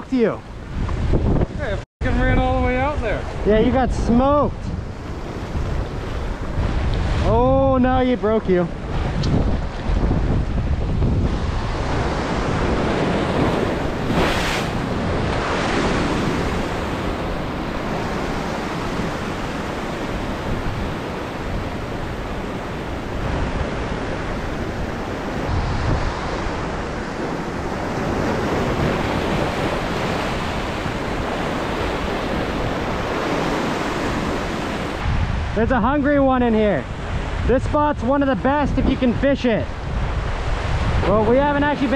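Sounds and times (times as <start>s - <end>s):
surf breaking on rocks: 5.5s - 35.6s.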